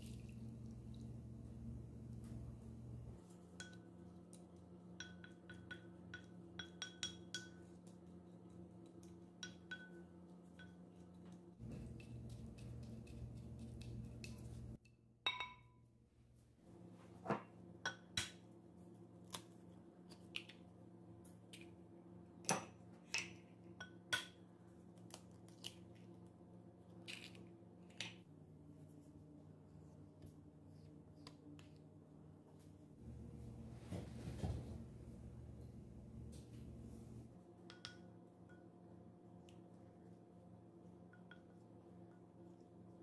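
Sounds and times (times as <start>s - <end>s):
faint steady hum: 0.0s - 22.4s, 23.2s - 43.0s
ringing clink on ceramic bowl: 15.3s - 15.8s.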